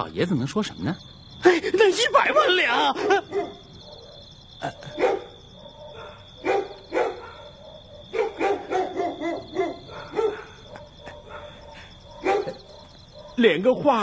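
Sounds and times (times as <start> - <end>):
insects chirping: 0.0 - 14.0
dog barking: 3.0 - 13.8.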